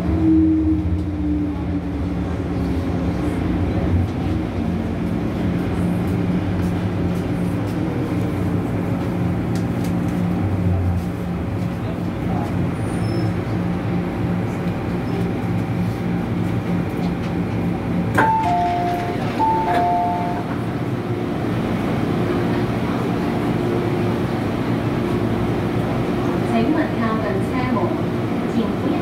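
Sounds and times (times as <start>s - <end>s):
train carriage running noise: 0.0s - 29.0s
two-tone door chime: 18.2s - 20.5s.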